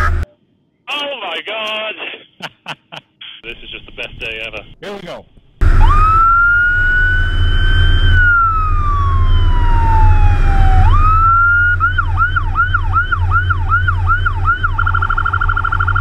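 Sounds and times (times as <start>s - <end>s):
truck engine drone: 5.5s - 16.0s
fire truck siren: 5.6s - 16.0s.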